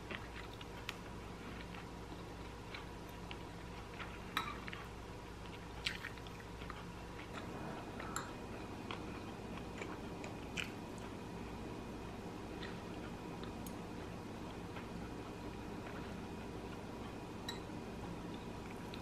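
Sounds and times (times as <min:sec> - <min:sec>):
close-up chewing: 0:00.0 - 0:08.2
steady low hum: 0:00.0 - 0:19.0.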